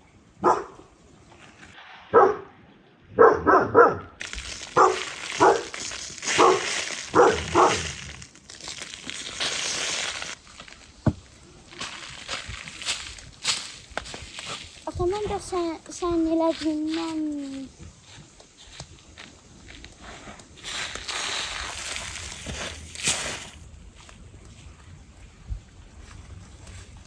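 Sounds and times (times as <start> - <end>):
dog barking: 0.4 - 0.8, 2.1 - 2.5, 3.2 - 4.2, 4.8 - 5.7, 6.4 - 7.9
powder being sprinkled: 4.2 - 11.0, 20.6 - 23.6.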